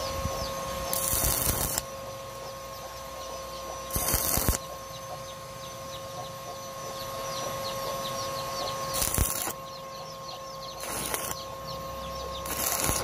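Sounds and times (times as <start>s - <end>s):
steady hum: 0.0s - 13.0s
welding arc crackling: 0.8s - 1.9s, 3.9s - 4.7s, 8.9s - 9.6s, 10.8s - 11.4s, 12.4s - 13.0s.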